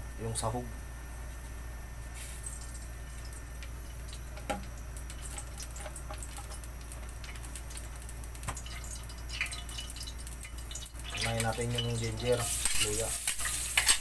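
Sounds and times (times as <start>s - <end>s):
steady low hum: 0.0s - 14.0s
oil ticking and clicking in wok: 2.5s - 14.0s.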